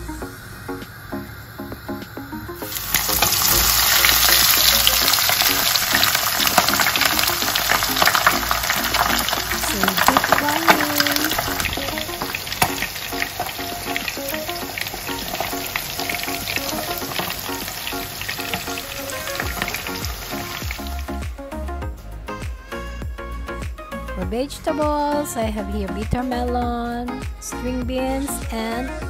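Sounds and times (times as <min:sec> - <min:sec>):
fish deep-frying in oil: 0:02.6 - 0:21.2.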